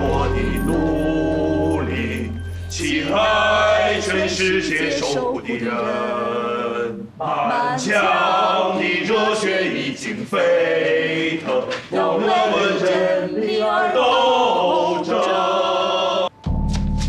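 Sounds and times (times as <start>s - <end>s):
held bell-like ringing tone: 0.0s - 5.2s
instrumental music: 0.0s - 5.3s
choir singing: 0.0s - 16.3s.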